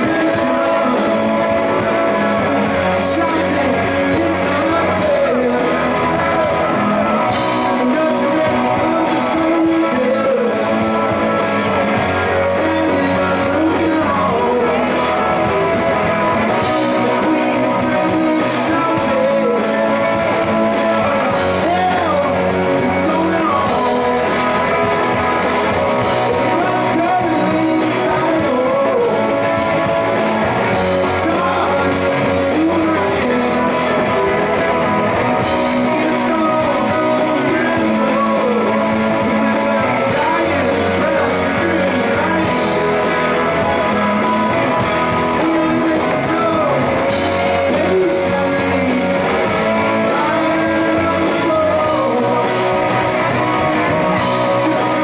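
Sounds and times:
electric guitars: 0.0s - 55.0s
person singing: 0.0s - 55.0s
rock band playing live: 0.0s - 55.0s.

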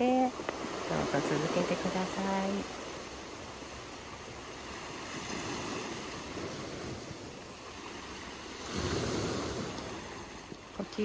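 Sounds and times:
small waves breaking on stones: 4.5s - 11.0s.

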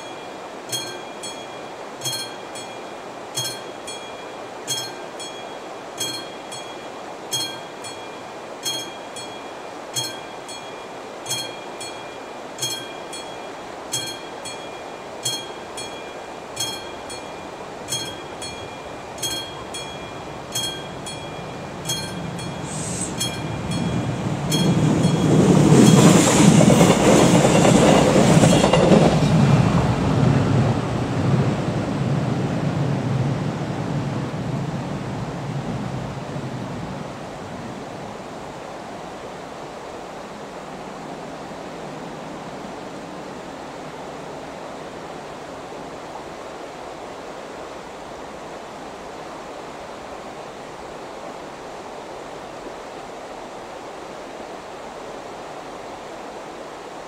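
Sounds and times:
crossing warning bell ringing: 0.0s - 29.1s
steady hiss: 0.0s - 31.0s
train wheels clattering: 6.0s - 29.6s.

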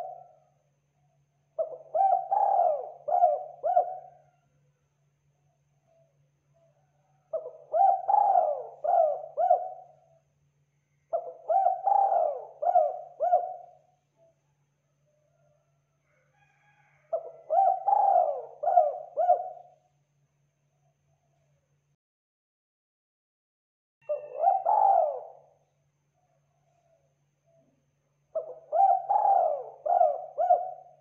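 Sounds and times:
dove cooing: 0.0s - 0.4s, 1.6s - 4.4s, 6.7s - 10.2s, 11.1s - 14.4s, 16.6s - 19.8s, 24.0s - 25.5s, 28.3s - 31.0s.

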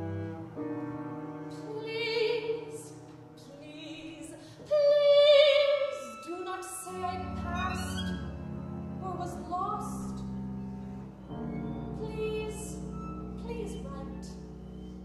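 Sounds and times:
woman singing operatically: 1.5s - 8.1s, 12.0s - 12.8s
sustained instrumental accompaniment: 5.6s - 15.0s.

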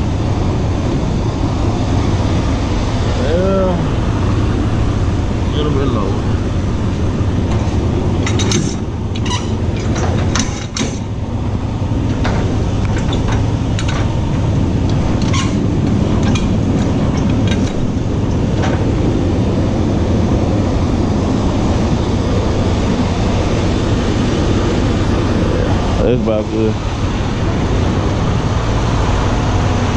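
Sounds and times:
diesel truck engine running: 0.0s - 29.9s
metallic clicks and clanks: 7.5s - 11.2s, 12.0s - 19.0s.

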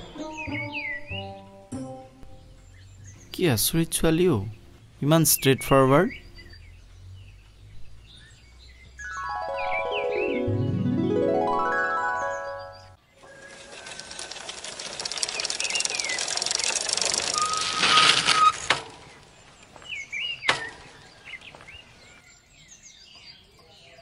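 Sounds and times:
birds chirping: 0.0s - 14.4s, 15.0s - 24.0s
bicycle freewheel ticking: 13.2s - 18.8s
bicycle brake squeal: 17.2s - 18.8s.

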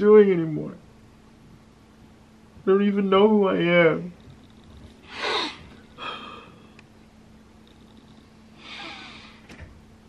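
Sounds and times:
man breathing heavily: 5.0s - 6.8s.

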